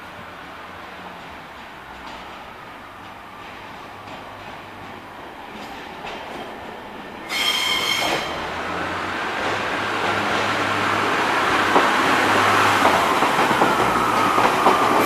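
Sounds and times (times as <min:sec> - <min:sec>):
train wheels rumbling on rail: 0:00.0 - 0:15.0
high-pitched squeal: 0:07.2 - 0:08.4.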